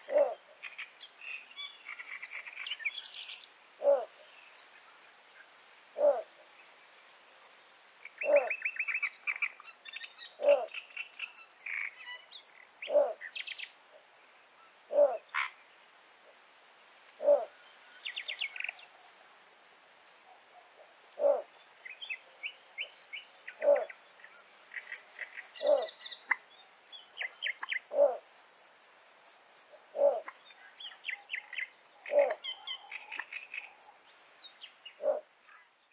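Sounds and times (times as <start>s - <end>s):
bird deep croak: 0.0s - 0.8s, 3.8s - 4.2s, 6.0s - 6.3s, 8.2s - 8.6s, 10.3s - 10.8s, 12.8s - 13.3s, 14.9s - 15.6s, 17.2s - 17.6s, 21.2s - 21.5s, 23.5s - 24.0s, 24.7s - 26.5s, 27.2s - 28.2s, 29.9s - 30.4s, 32.0s - 34.0s, 35.0s - 35.3s
small birds chattering: 23.1s - 28.2s.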